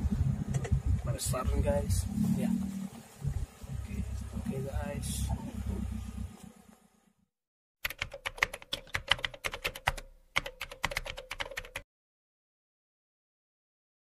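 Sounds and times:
low background rumble: 0:00.0 - 0:06.7
rapid keyboard key clicks: 0:07.8 - 0:11.8.

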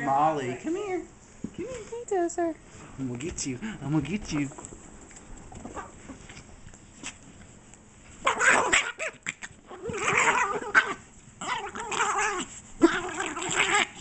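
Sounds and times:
small dog play growling: 0:08.1 - 0:14.0.

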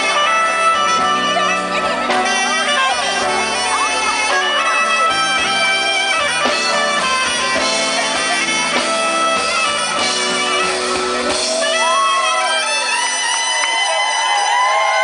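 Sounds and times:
live band playing: 0:00.0 - 0:15.0
soprano saxophone long notes: 0:00.0 - 0:15.0
crowd cheering and whooping: 0:11.1 - 0:15.0.

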